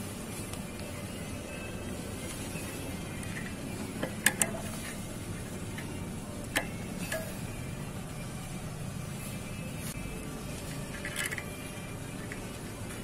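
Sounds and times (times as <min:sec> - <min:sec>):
low background hum: 0:00.0 - 0:13.0
hand tool tapping on metal: 0:03.2 - 0:07.4.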